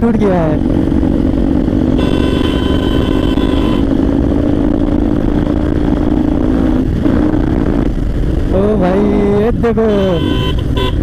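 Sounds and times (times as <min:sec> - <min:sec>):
motorcycle engine running: 0:00.0 - 0:11.0
vehicle horn: 0:02.0 - 0:03.9, 0:09.8 - 0:11.0.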